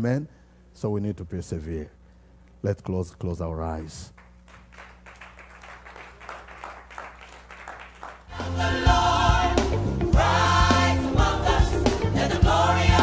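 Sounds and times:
gospel choir singing with band: 8.3 - 13.0.

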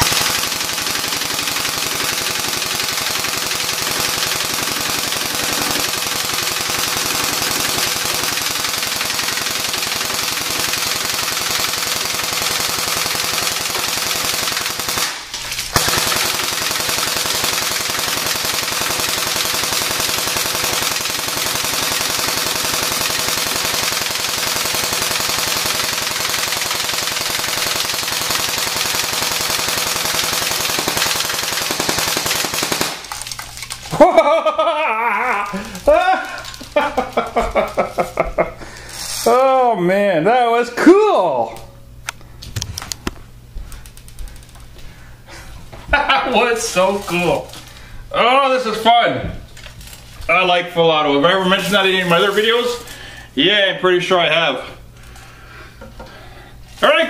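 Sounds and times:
airsoft rifle firing full auto: 0.0 - 34.1.

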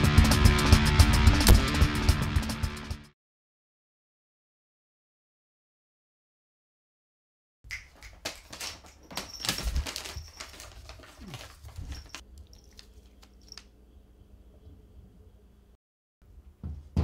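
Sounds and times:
claws scratching clicks: 7.7 - 13.7
paper crinkling: 7.7 - 13.7.

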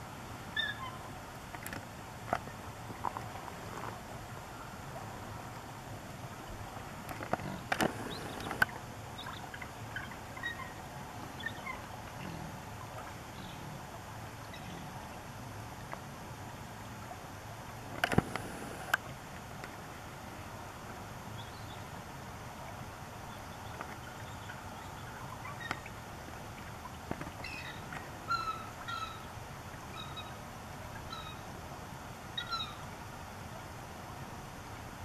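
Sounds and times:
eagle chirping calls: 0.6 - 1.0, 7.9 - 8.6, 27.4 - 29.3, 31.0 - 31.4, 32.4 - 32.8
sharp clicks: 18.0 - 19.0.

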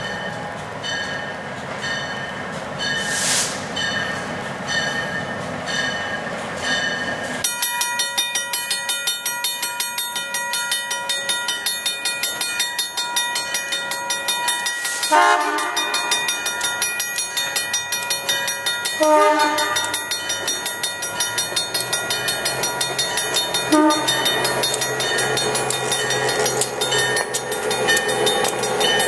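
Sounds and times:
crossing bell ringing: 0.0 - 3.2, 3.8 - 29.0
diesel locomotive approaching: 0.0 - 29.0
locomotive horn blast: 15.1 - 16.1, 19.0 - 20.0, 23.7 - 24.2.

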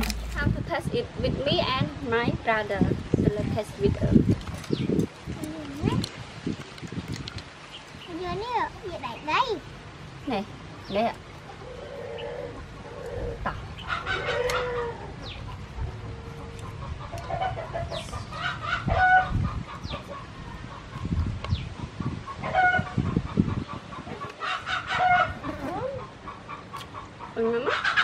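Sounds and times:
hens clucking: 10.3 - 28.0.

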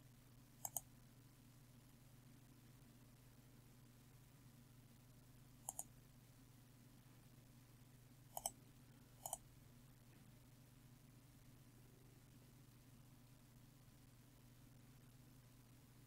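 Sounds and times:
faint steady hum: 0.0 - 16.0
computer mouse clicks: 0.6 - 0.9, 5.6 - 5.9, 8.3 - 8.6, 9.2 - 9.4.

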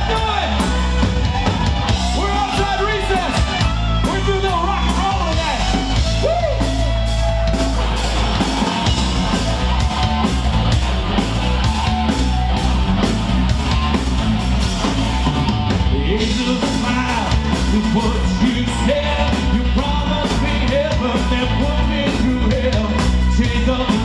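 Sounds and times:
steady drum beat: 0.0 - 24.0.

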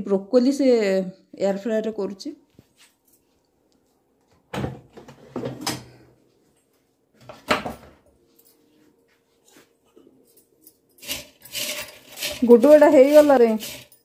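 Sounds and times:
scrape or rattle: 11.0 - 14.0.

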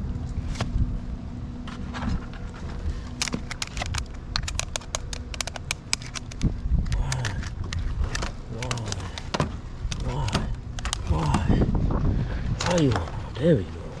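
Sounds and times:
low rumble: 0.0 - 14.0
fast sharp clicks: 3.2 - 9.3.

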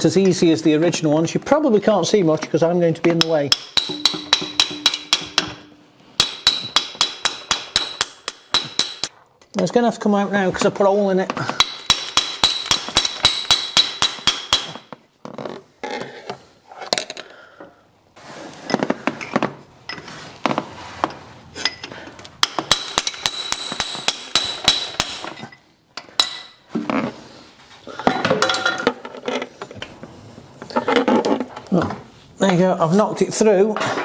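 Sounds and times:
hammer ringing on metal: 3.5 - 9.1.

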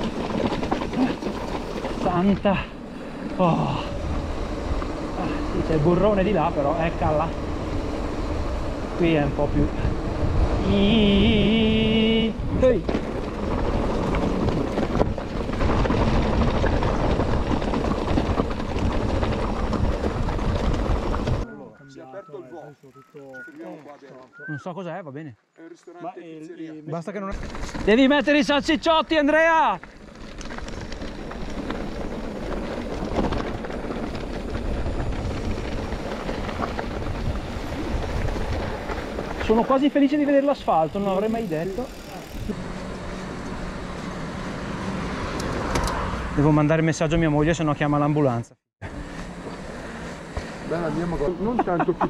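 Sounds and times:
bike rattling over rough trail: 0.0 - 24.6, 26.9 - 48.2, 48.8 - 52.0
wind on microphone: 7.4 - 21.4, 32.8 - 39.4.

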